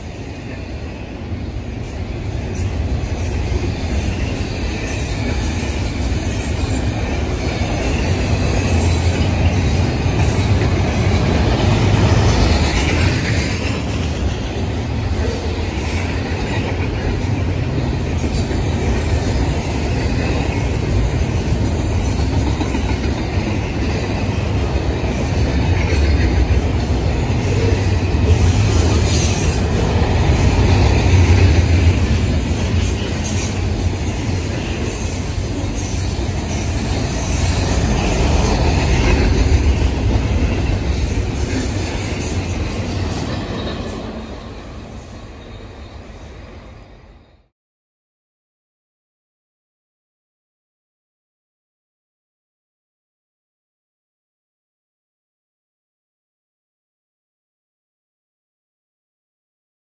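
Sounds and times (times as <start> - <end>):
freight train wheels rumbling: 0.0 - 47.5.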